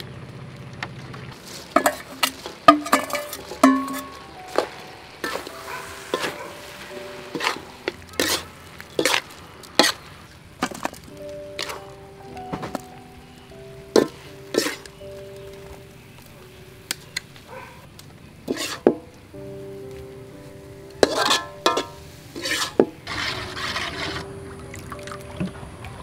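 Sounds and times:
ladle stirring sauce in metal bowl: 0:01.4 - 0:06.7, 0:07.3 - 0:11.9, 0:14.0 - 0:14.9, 0:18.5 - 0:19.0, 0:21.0 - 0:24.2
soft background music: 0:01.8 - 0:26.0
spatula scraping metal tray: 0:07.3 - 0:11.0, 0:14.0 - 0:14.9, 0:18.5 - 0:19.0, 0:21.0 - 0:24.3.

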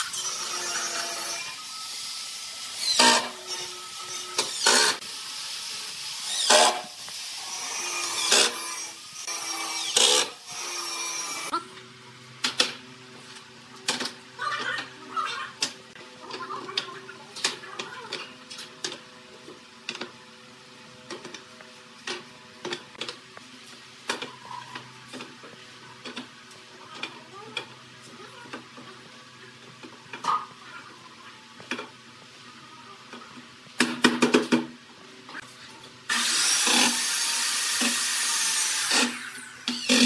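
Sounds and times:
cordless drill driving screw: 0:06.2 - 0:06.8, 0:09.3 - 0:11.5, 0:36.1 - 0:40.0.

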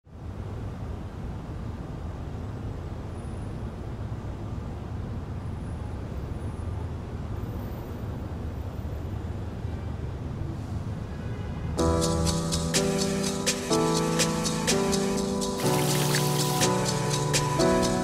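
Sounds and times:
light hiss: 0:14.8 - 0:17.4.

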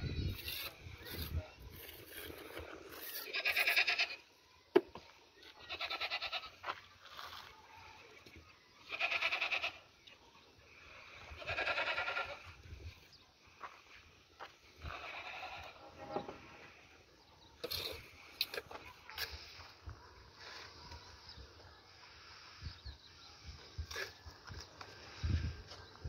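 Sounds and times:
animal bleating: 0:03.0 - 0:04.2, 0:05.6 - 0:06.6, 0:08.8 - 0:09.8, 0:11.3 - 0:12.6, 0:14.8 - 0:15.9.

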